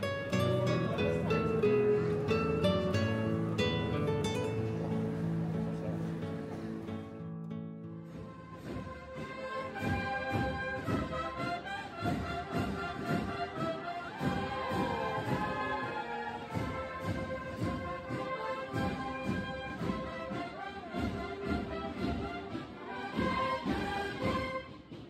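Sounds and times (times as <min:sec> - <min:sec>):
steady drumbeat: 0:00.0 - 0:07.0, 0:08.0 - 0:25.0
trumpets sliding between notes: 0:08.0 - 0:25.0.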